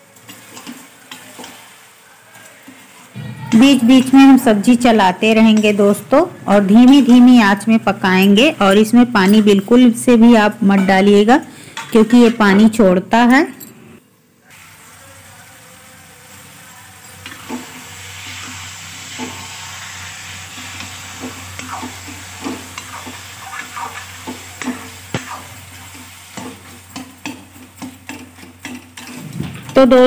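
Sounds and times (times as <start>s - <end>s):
vegetables sizzling in a pan: 0.0s - 12.9s, 14.0s - 30.0s
metal ladle scraping and knocking pan: 22.4s - 30.0s.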